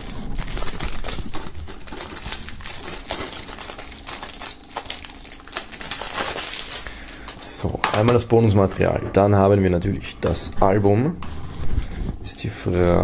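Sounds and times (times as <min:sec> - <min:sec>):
plastic film crinkling: 0:00.0 - 0:08.3.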